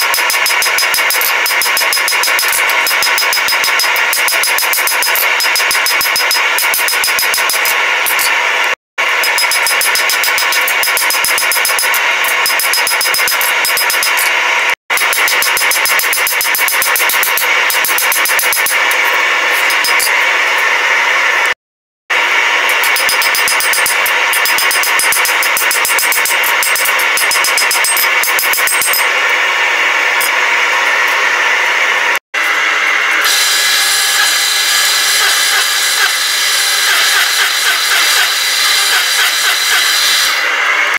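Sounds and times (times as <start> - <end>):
hammer striking steel on anvil: 0.0 - 8.4, 9.2 - 20.2, 22.7 - 29.2.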